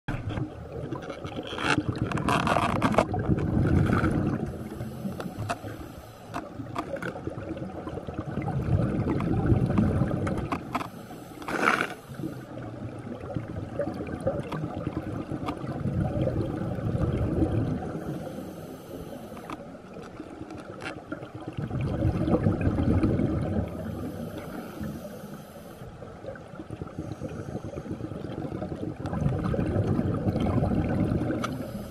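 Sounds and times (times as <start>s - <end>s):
underwater bubbles gurgling: 0.1s - 31.9s
underwater hiss: 3.8s - 6.4s, 10.9s - 12.6s, 17.4s - 19.6s, 23.1s - 26.0s, 26.8s - 28.3s, 31.2s - 31.9s.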